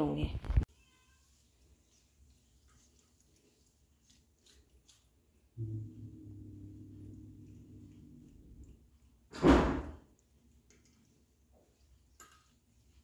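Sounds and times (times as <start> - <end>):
low steady hum: 5.6 - 9.3.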